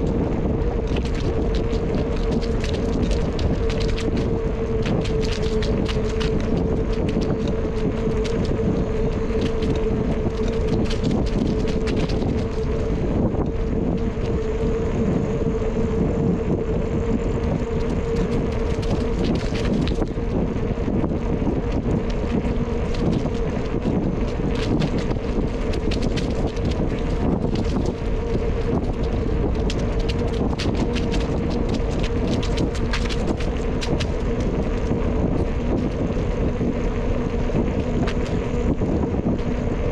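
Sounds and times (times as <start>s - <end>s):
steady hum: 0.0s - 39.9s
tyres rumbling on trail: 0.0s - 39.9s
wind buffeting microphone: 0.0s - 39.9s.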